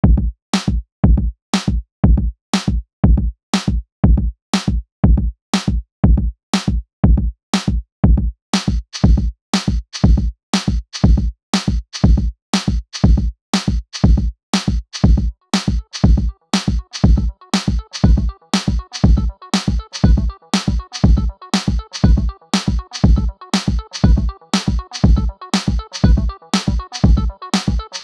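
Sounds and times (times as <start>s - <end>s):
electronic music with drum beat: 8.6s - 28.0s.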